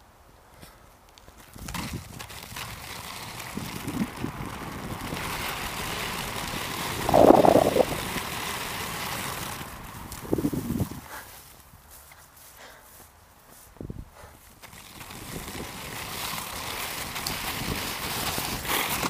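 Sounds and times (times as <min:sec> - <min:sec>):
skate wheels rolling on gravel: 0:00.6 - 0:19.0
wind on microphone: 0:03.4 - 0:05.7, 0:06.8 - 0:08.2, 0:09.8 - 0:11.2.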